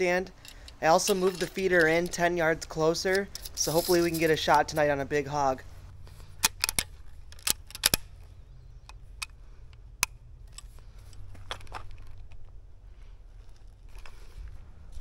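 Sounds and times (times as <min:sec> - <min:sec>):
metallic clicks of rifle loading: 0:00.3 - 0:04.9, 0:06.0 - 0:12.5.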